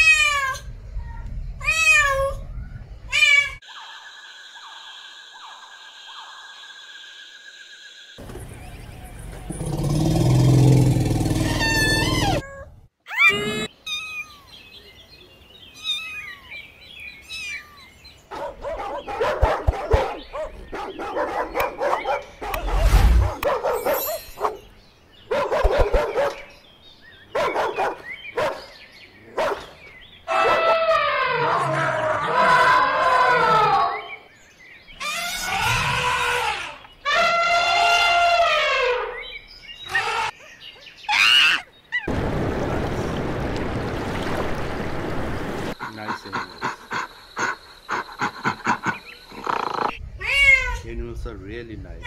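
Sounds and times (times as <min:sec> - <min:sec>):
high squeaky calls: 0:11.4 - 0:14.6, 0:15.7 - 0:16.6, 0:17.2 - 0:18.0, 0:35.0 - 0:42.1
dog barking and yipping: 0:18.3 - 0:24.7, 0:25.3 - 0:26.5, 0:27.4 - 0:28.7.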